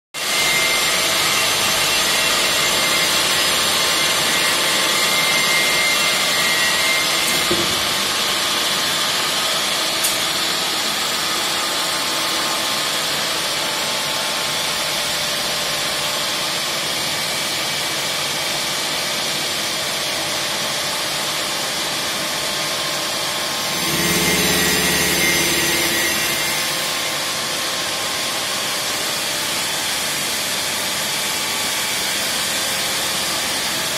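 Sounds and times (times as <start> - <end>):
machine running hum: 23.4 - 29.0
deeper hum: 23.7 - 27.0.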